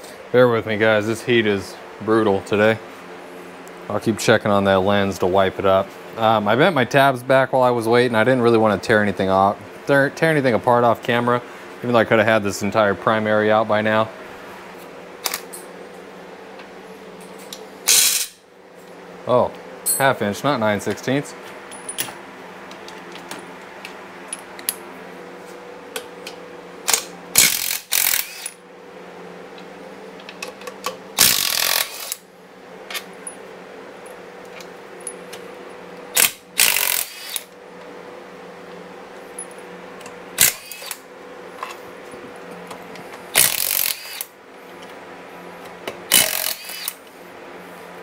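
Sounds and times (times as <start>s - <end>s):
impact wrench bursts: 17.9s - 18.4s, 26.9s - 28.6s, 31.2s - 32.2s, 36.1s - 37.5s, 40.4s - 41.0s, 43.3s - 44.3s, 46.1s - 47.0s.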